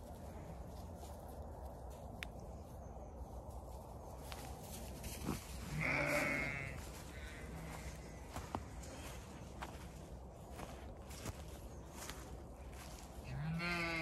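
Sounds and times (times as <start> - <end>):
sheep bleating: 5.6 - 6.9, 13.3 - 14.0.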